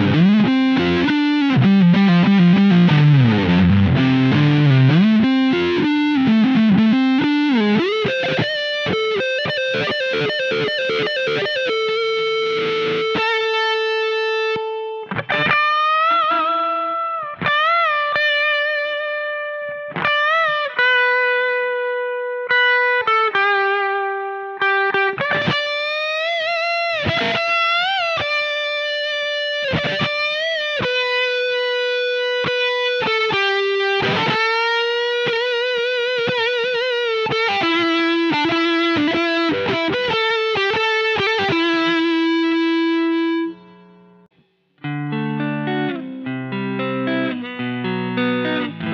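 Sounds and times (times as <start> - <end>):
fuzz electric guitar lead riff: 0.0 - 48.9.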